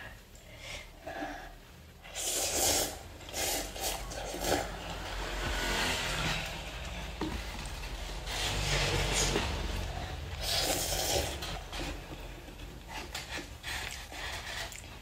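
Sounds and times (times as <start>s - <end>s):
noodles slurping: 2.1s - 15.0s
steady low rumble: 4.4s - 10.5s
chewing: 12.8s - 15.0s.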